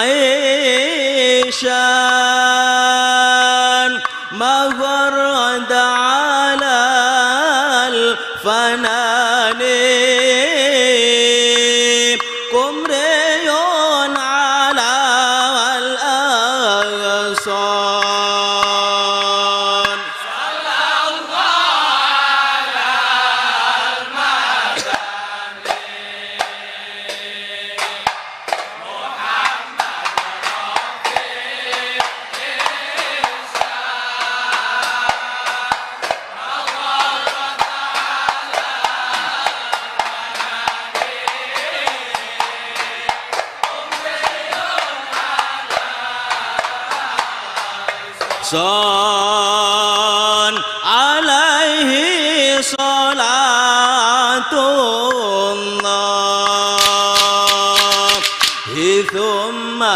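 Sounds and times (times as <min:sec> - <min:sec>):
men chanting together: 0:00.0 - 0:59.9
hand claps: 0:03.8 - 0:05.5, 0:06.1 - 0:20.7, 0:24.7 - 0:48.9, 0:50.4 - 0:53.4, 0:55.0 - 0:59.4
sharp strikes: 0:56.5 - 0:59.4.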